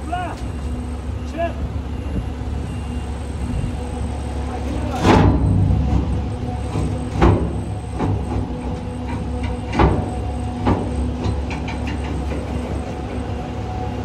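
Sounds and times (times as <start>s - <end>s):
tractor engine running: 0.0s - 14.0s
front loader knocks: 4.6s - 13.9s.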